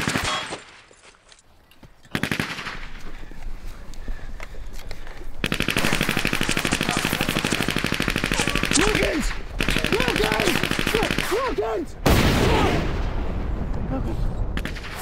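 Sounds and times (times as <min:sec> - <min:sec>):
machine-gun fire: 0:05.4 - 0:12.8.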